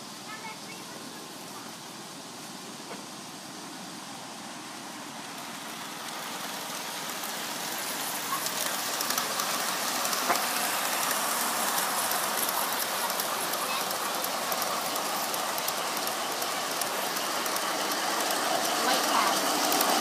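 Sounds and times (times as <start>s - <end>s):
model train rattling on track: 0.0s - 20.0s.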